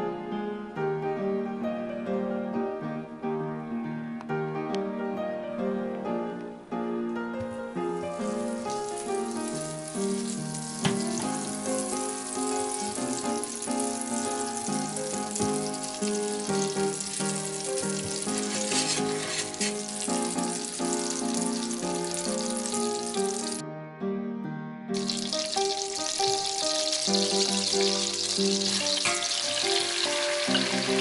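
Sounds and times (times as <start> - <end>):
background music: 0.0 - 31.0
butter sizzling in a pan: 8.2 - 23.6, 25.0 - 31.0.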